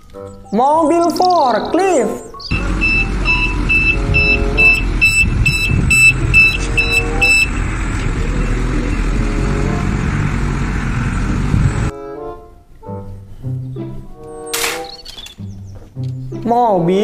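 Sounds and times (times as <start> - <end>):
forklift engine running: 2.4 - 11.9
reversing alarm beeping: 2.4 - 11.9.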